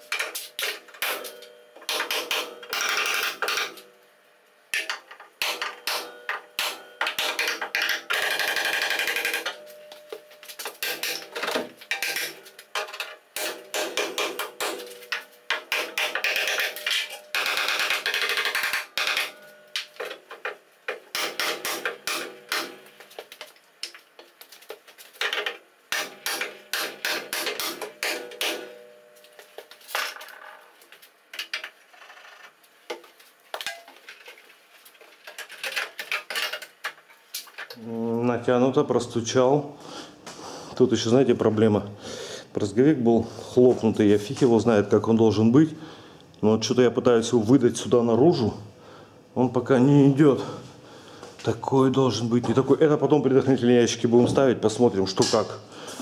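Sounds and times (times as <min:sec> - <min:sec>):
hammer striking steel: 0:00.1 - 0:03.8, 0:04.8 - 0:09.8, 0:13.4 - 0:20.1, 0:21.1 - 0:22.9, 0:25.9 - 0:29.1.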